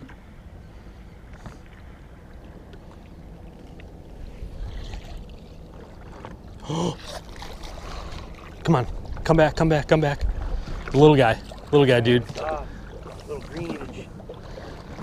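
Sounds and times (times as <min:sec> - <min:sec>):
lake water lapping: 0:00.0 - 0:15.0
wind rumble: 0:08.2 - 0:11.6.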